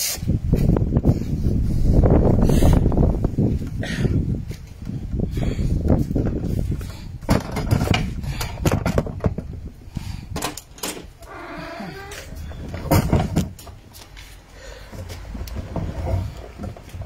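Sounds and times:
creaking tone: 11.2 - 13.0.

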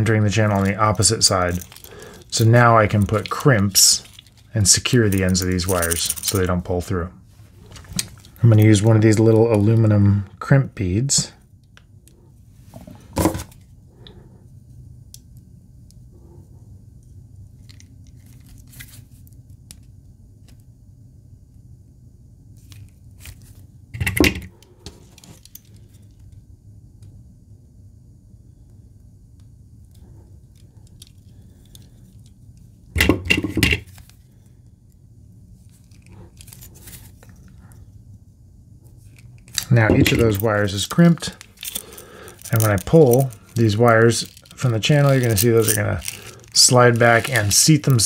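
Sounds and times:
light clicks and handling noises: 0.3 - 6.7, 38.8 - 48.0.

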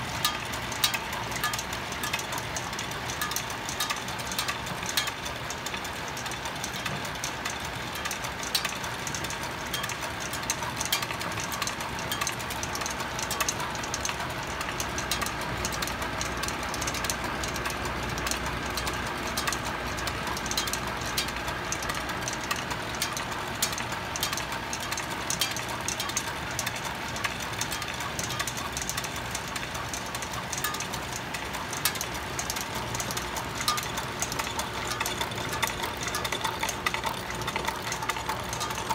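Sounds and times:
wooden gears clicking and clacking: 0.0 - 38.9.

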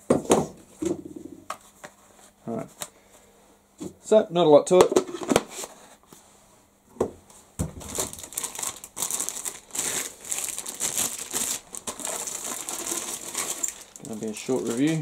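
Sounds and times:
plastic bag crinkling: 7.8 - 15.0.

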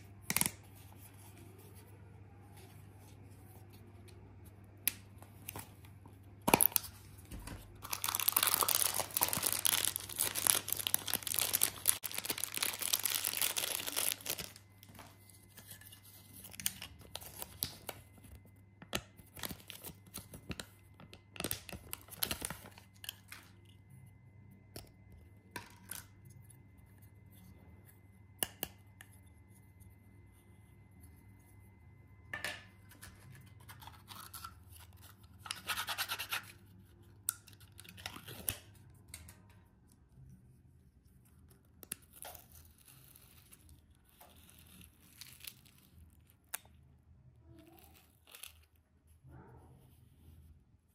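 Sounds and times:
paper and plastic rustling: 6.7 - 18.4
plastic packaging ripping: 7.8 - 14.6.

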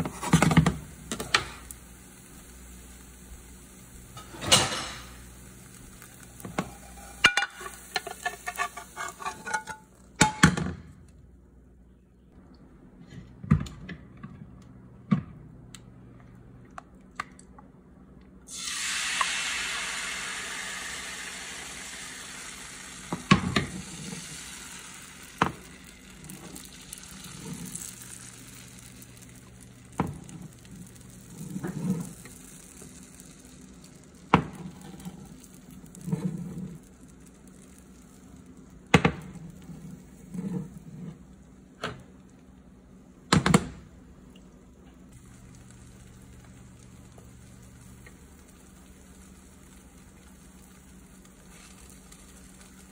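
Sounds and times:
batter sizzling in a pan: 0.0 - 10.2, 18.5 - 42.6, 45.1 - 52.9.

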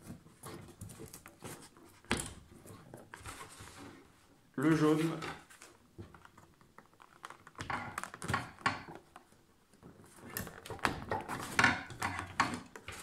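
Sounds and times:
plastic clicks and rustling: 5.6 - 13.0.

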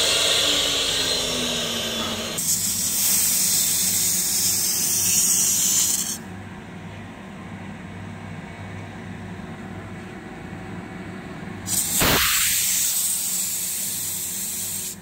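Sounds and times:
compressed air blow gun hissing: 0.0 - 6.2, 11.7 - 15.0
low machine hum: 0.0 - 12.0.

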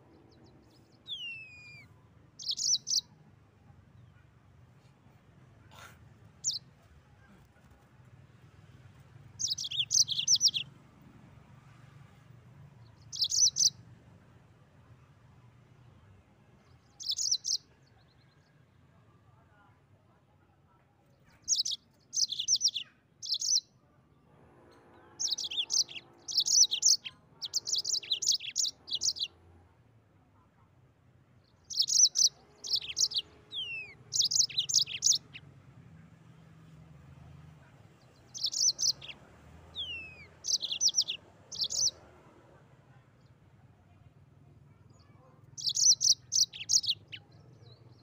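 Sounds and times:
canary singing trilling chirps: 0.1 - 3.2, 6.4 - 6.6, 9.3 - 10.7, 12.9 - 13.8, 16.7 - 18.2, 21.3 - 23.7, 25.0 - 29.4, 31.4 - 35.5, 37.6 - 42.0, 45.0 - 48.0.

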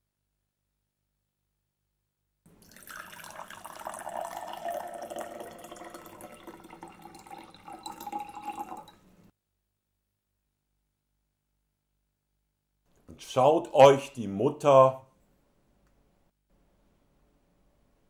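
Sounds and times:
syrup pouring into a glass: 2.5 - 9.1.

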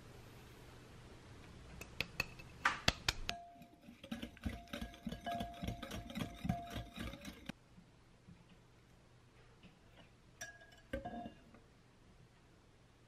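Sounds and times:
whisk clicking against glass bowl: 3.1 - 7.5
glass clinks: 10.4 - 11.4.

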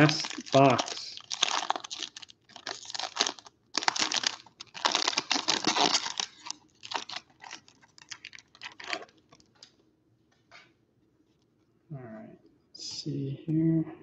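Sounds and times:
foil wrapper crinkling: 0.0 - 9.7.

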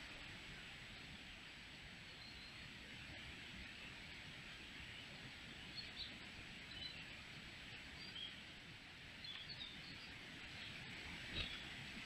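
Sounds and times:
microphone hiss: 0.0 - 12.0
faint birds chirping: 1.9 - 2.8, 3.6 - 8.5, 9.1 - 12.0.

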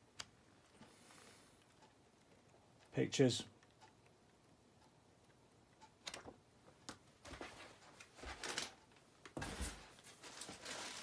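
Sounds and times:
rustling in cardboard box: 9.4 - 11.0.

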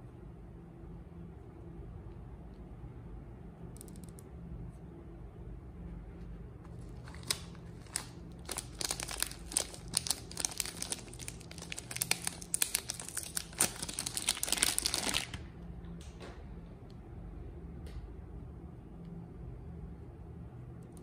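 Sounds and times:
packaging crinkling and tearing: 6.8 - 15.5.

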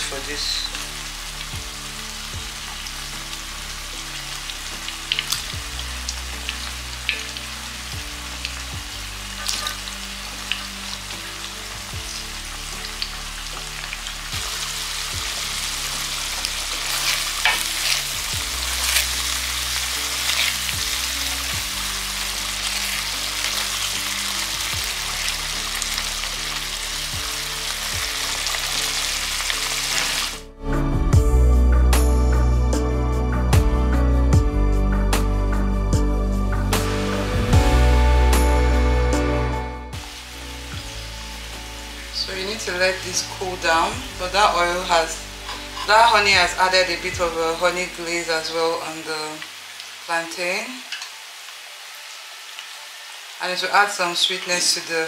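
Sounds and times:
sauce frying while stirred: 0.0 - 30.4, 40.0 - 55.0
oil sizzling in a pan: 0.0 - 30.5, 36.8 - 55.0.

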